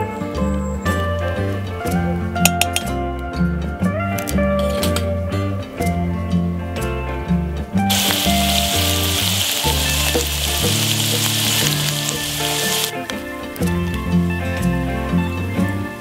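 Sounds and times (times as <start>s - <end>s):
background music: 0.0s - 16.0s
potatoes frying in hot oil: 7.9s - 13.0s.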